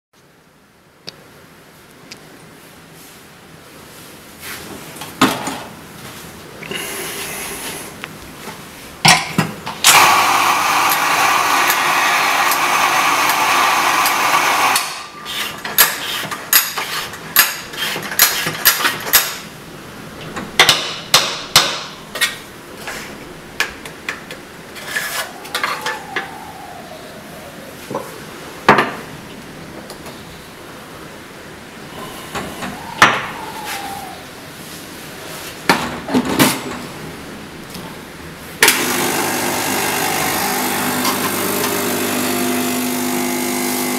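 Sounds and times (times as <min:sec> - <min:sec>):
coffee grinder motor running: 0:09.9 - 0:15.0, 0:38.7 - 0:43.9.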